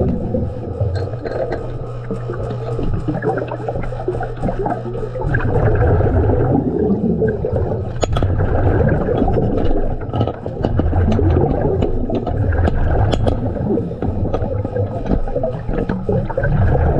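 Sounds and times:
exhaust bubbles: 0:00.0 - 0:16.9.

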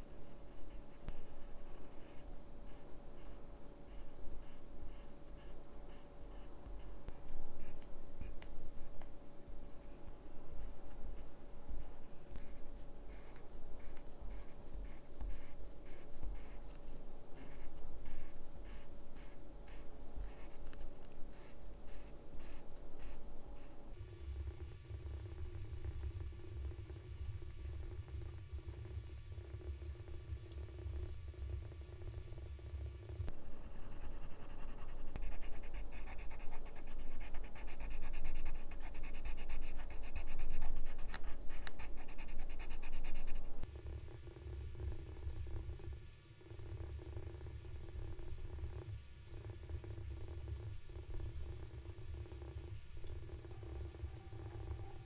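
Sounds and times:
pencil scratching on paper: 0:12.4 - 0:16.8, 0:17.4 - 0:23.8, 0:33.5 - 0:43.6
sharp pencil ticks: 0:33.9 - 0:43.5.

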